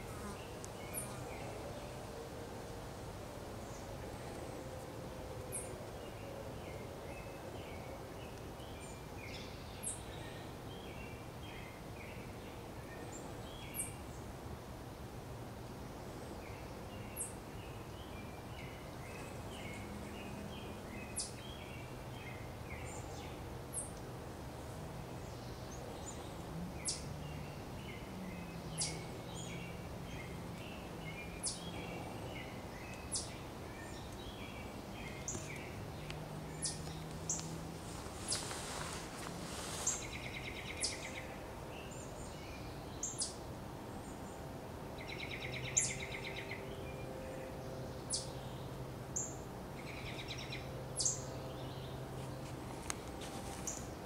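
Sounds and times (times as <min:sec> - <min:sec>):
soft bird chirping: 0:25.2 - 0:43.4.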